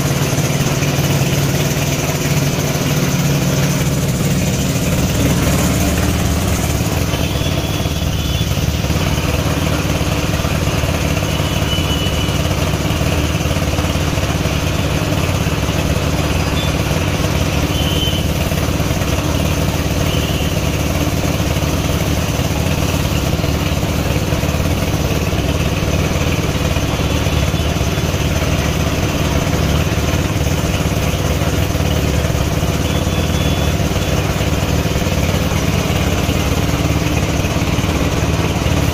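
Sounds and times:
air compressor running: 0.0s - 38.9s.

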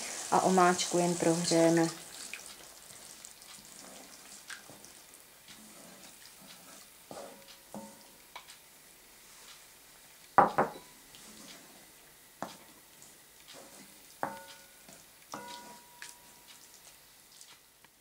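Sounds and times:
spatula stirring sauce in pan: 0.2s - 17.8s
spatula knocking against pan: 7.3s - 8.5s, 10.4s - 10.9s, 14.2s - 14.8s.

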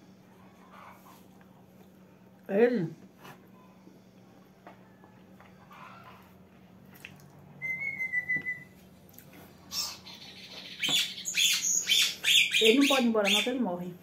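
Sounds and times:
bird whistled note: 7.6s - 8.8s.

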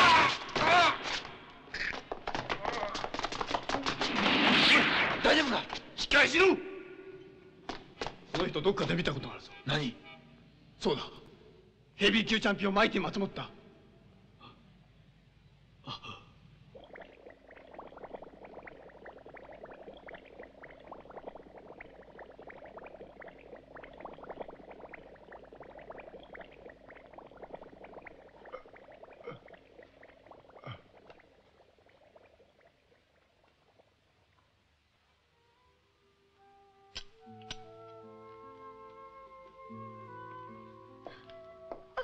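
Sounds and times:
water bubbling in a bottle: 16.6s - 34.6s.

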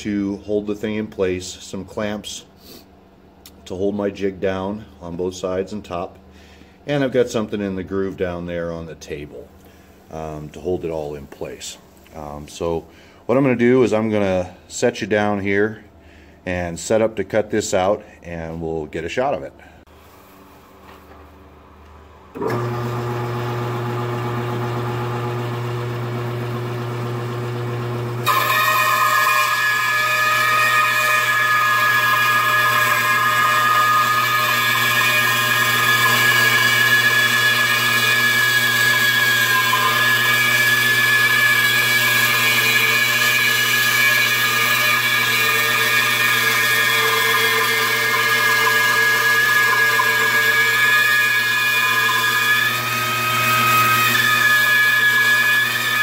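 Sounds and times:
band saw humming: 22.3s - 56.0s
saw blade whining through wood: 22.4s - 56.0s.

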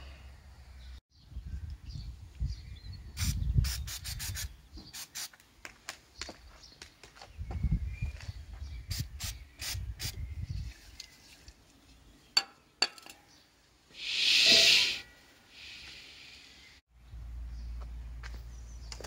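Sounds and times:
aerosol spray hissing: 3.2s - 5.3s, 14.0s - 15.0s.

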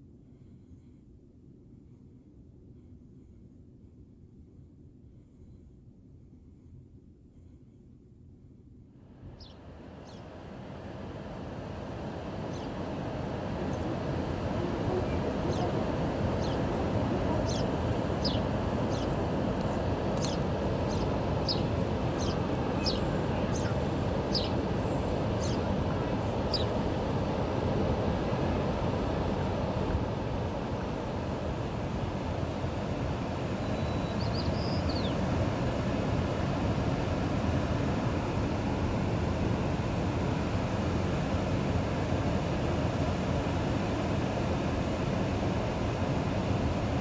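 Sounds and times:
faint high chirp: 9.4s - 10.3s, 20.2s - 24.6s, 33.6s - 35.2s
wind on microphone: 10.2s - 40.0s.

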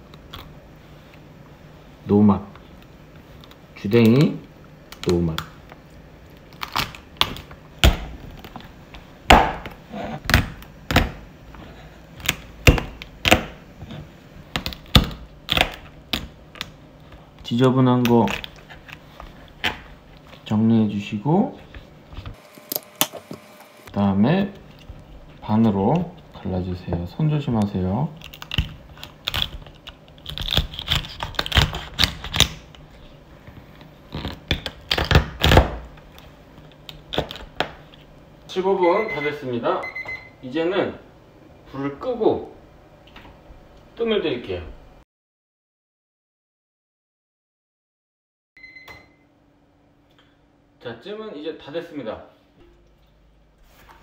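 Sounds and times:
knife cracking crab shell: 28.2s - 32.7s.

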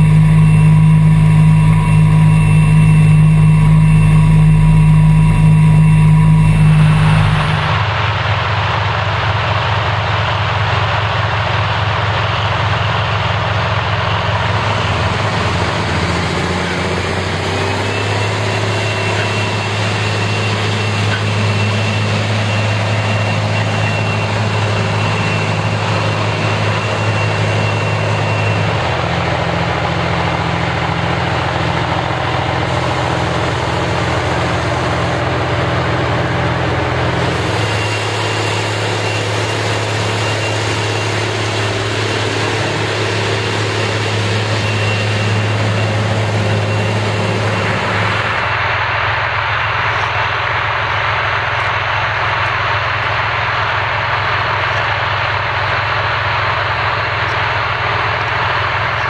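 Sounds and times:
diesel tractor engines humming: 0.0s - 59.0s.

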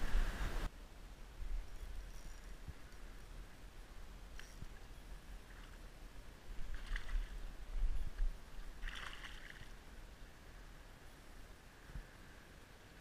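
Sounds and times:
water splashes: 6.5s - 10.0s.

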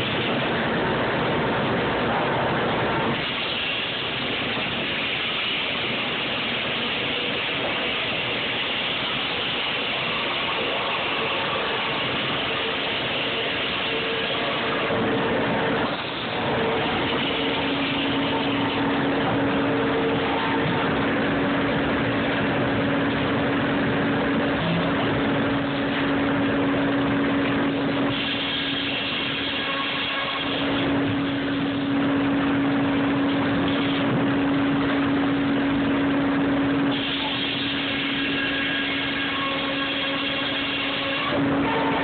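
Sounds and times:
machine hum: 0.0s - 42.0s
high-pitched saw whine: 2.9s - 23.4s, 24.3s - 32.6s, 36.9s - 42.0s
circular saw cutting log: 7.1s - 21.2s, 28.0s - 31.9s, 36.9s - 42.0s.

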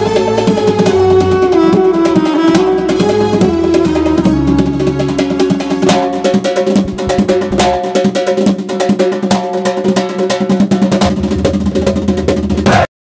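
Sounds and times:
held melody line: 0.0s - 8.6s
fast dense drumming: 0.0s - 12.9s.

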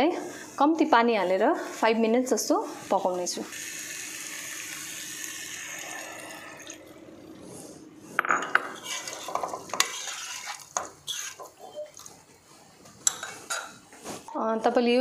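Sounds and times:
water pouring into a pan: 3.6s - 7.0s, 8.8s - 11.3s.

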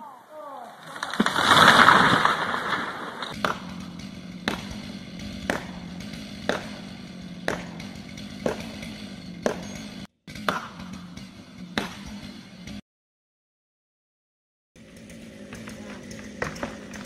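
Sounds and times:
tree crashing onto roof: 0.8s - 3.3s
hammer blows: 2.8s - 12.8s.

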